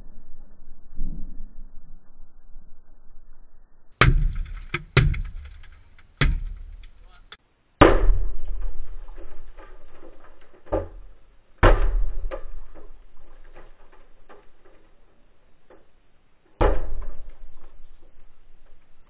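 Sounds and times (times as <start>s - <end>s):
hard crunching blows on glass: 4.0s - 8.2s.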